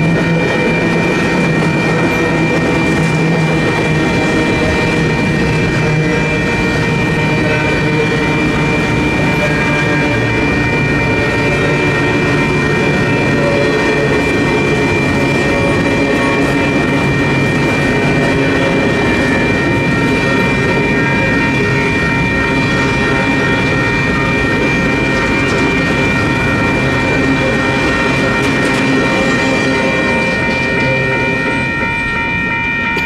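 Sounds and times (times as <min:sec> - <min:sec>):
crossing bells ringing: 0:00.0 - 0:33.0
freight train wheels rumbling: 0:00.0 - 0:33.0.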